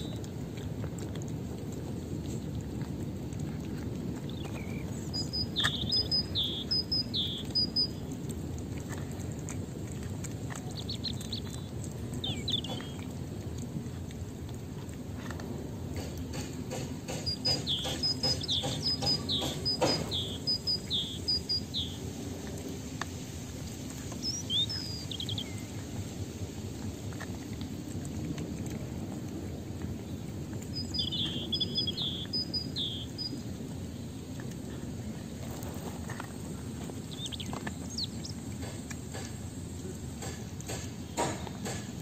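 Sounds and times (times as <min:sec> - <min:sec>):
cats chewing wet food: 0:00.0 - 0:42.0
songbird chirping: 0:04.2 - 0:08.2, 0:10.5 - 0:13.1, 0:16.0 - 0:25.9, 0:30.0 - 0:34.8, 0:35.4 - 0:41.8.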